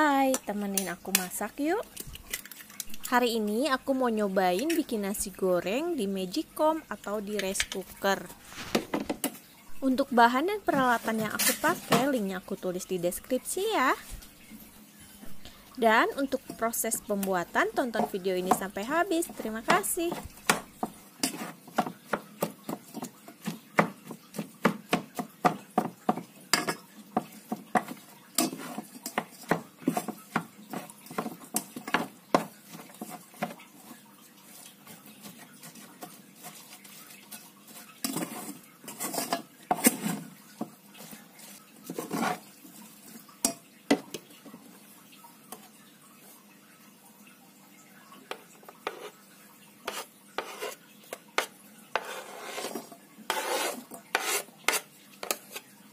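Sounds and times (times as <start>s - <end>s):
paddle scraping metal pot: 35.3s - 40.3s, 51.4s - 55.7s.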